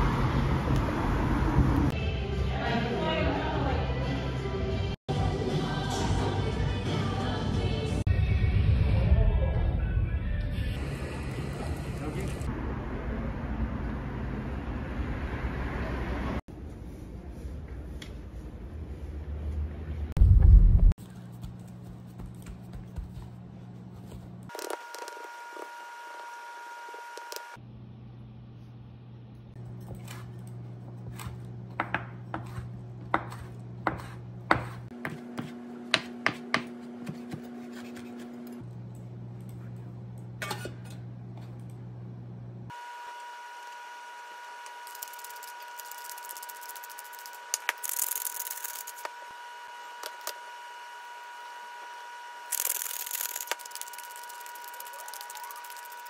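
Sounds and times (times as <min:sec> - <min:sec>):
loud low rumble: 0:20.2 - 0:21.0.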